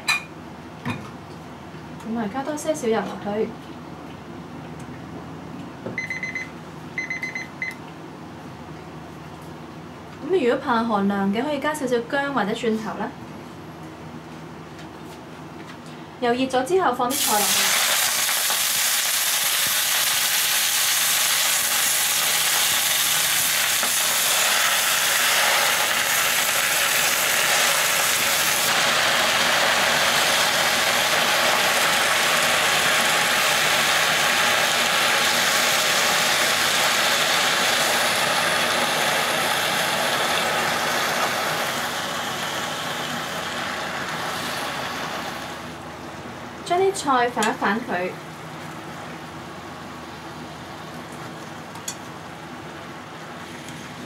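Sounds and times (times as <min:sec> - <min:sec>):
leaves sizzling in hot oil: 0:17.1 - 0:45.8.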